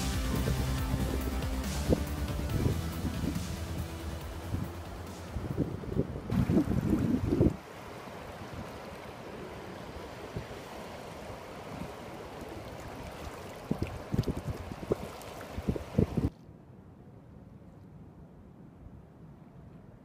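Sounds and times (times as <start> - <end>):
low buffeting thumps: 0.0 - 7.6
wind blowing across microphone: 0.0 - 16.3.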